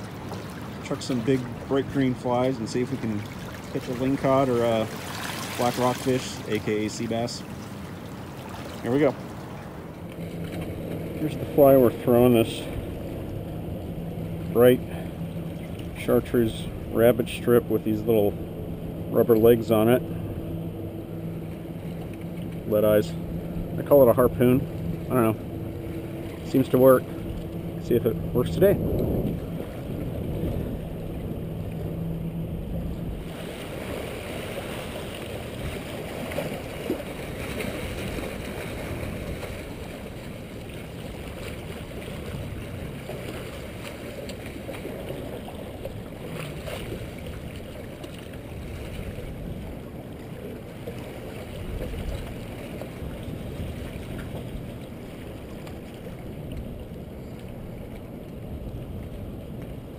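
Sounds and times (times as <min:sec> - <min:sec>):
sea water washing against rocks: 0:00.0 - 0:13.5, 0:32.8 - 0:56.9
wind rumble on microphone: 0:10.2 - 0:43.9, 0:44.8 - 0:59.9.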